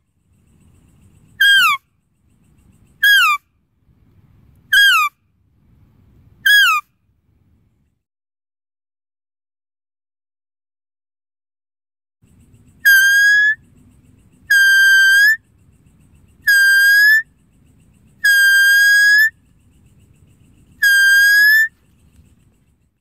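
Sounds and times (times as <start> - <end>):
deer call whistle notes: 4.7 - 5.1, 6.4 - 6.8, 12.8 - 13.6, 14.5 - 15.4, 16.4 - 17.2, 18.2 - 19.3, 20.8 - 21.7.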